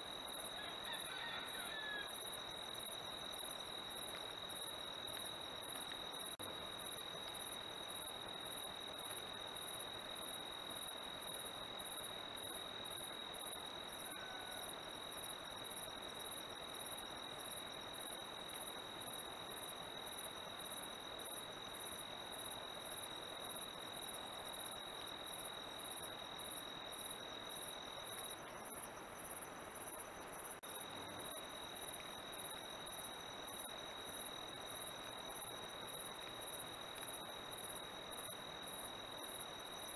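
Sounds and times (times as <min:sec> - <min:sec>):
night insects chirping: 0:00.0 - 0:39.9.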